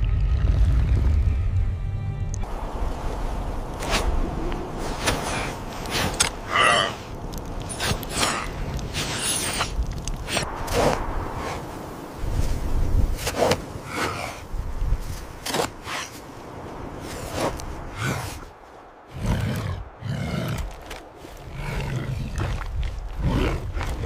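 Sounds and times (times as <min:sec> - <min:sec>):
hands digging in snow: 0:07.6 - 0:18.7.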